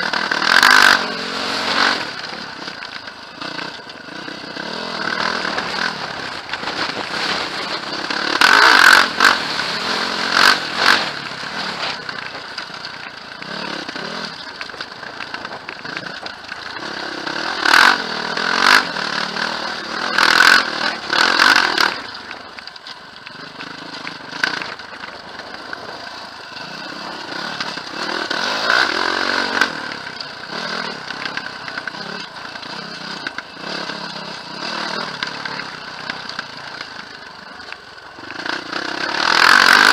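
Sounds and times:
quad bike engine running: 0.0 - 39.9.

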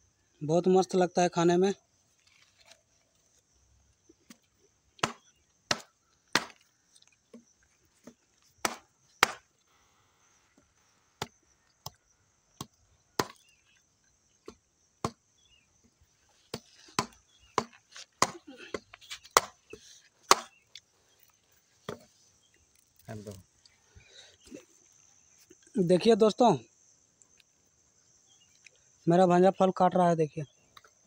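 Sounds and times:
sickle blade chopping fruit husk: 5.0 - 6.7, 8.0 - 9.6, 12.6 - 13.5, 14.4 - 15.2, 16.5 - 20.6.

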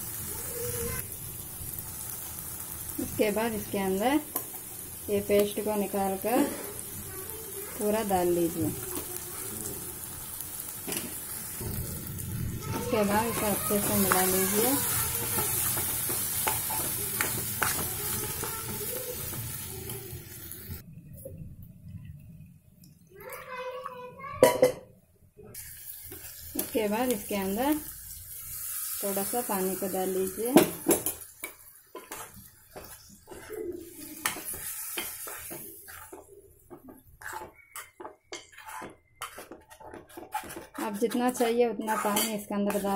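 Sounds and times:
food sizzling in a pan: 0.0 - 20.8, 25.6 - 42.9
spoon scraping a metal pan: 13.0 - 20.0, 30.6 - 42.9.

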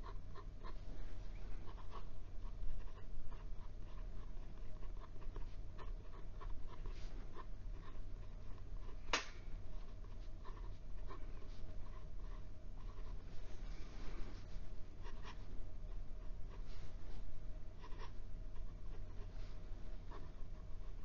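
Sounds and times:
steady low hum: 0.0 - 21.0
pen nib scratching on paper: 1.6 - 13.3, 15.0 - 17.2, 17.8 - 21.0.

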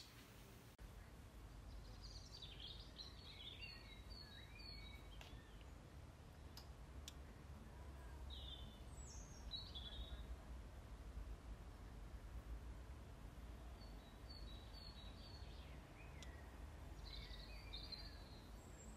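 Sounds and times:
faint birdsong: 0.0 - 18.9
faint clicks: 5.0 - 5.8, 6.5 - 7.2, 16.1 - 16.4.

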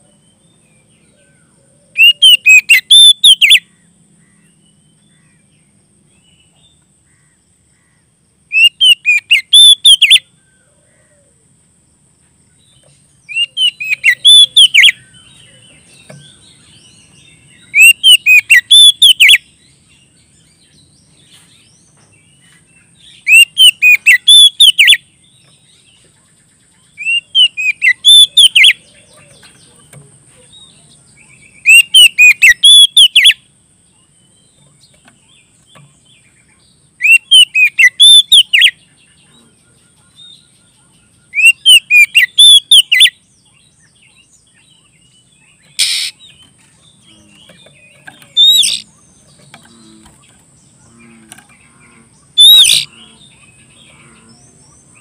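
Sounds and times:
bird singing whistled phrases: 2.0 - 3.6, 8.6 - 10.2, 13.3 - 15.0, 17.7 - 19.4, 23.2 - 25.0, 27.0 - 28.8, 31.6 - 33.4, 37.0 - 38.8, 41.3 - 43.2, 48.0 - 48.9, 52.4 - 52.9.

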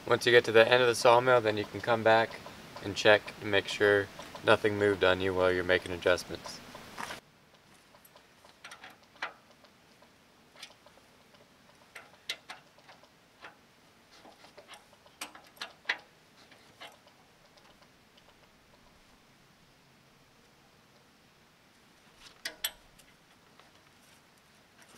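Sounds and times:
wrench clicking on metal bolts: 8.5 - 9.6, 11.8 - 13.6, 14.2 - 17.0, 22.4 - 23.2.

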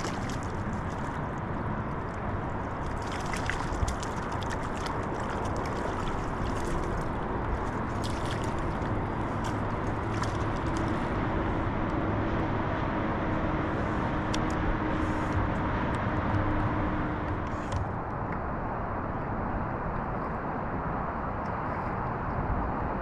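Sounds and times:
splashing and dripping from net: 0.0 - 1.4, 2.8 - 11.1
water lapping against kayak hull: 0.0 - 11.6
wind rumble on microphone: 0.0 - 23.0.

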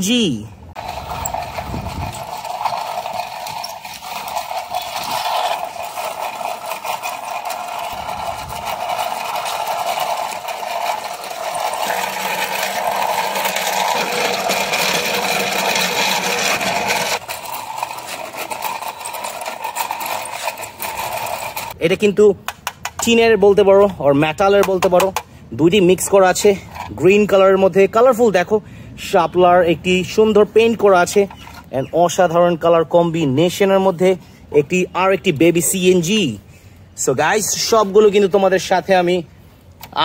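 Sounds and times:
toy rickshaw clattering and whirring: 0.7 - 23.4, 24.4 - 28.4, 29.8 - 34.0.

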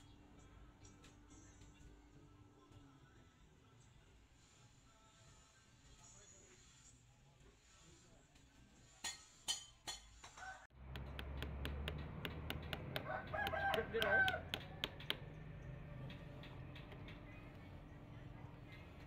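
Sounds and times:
sharp knocks: 10.9 - 15.4
rooster crowing: 12.9 - 14.8.

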